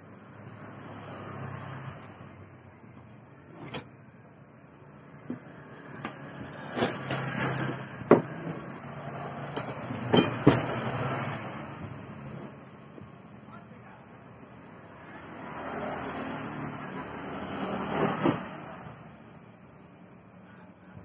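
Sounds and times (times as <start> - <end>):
metal bars knocking and clinking: 9.4 - 10.9.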